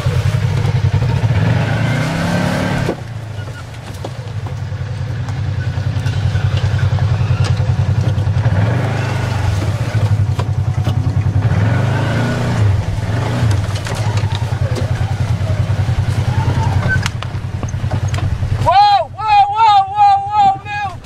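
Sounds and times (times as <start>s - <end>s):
utility vehicle engine revving: 0.0s - 21.0s.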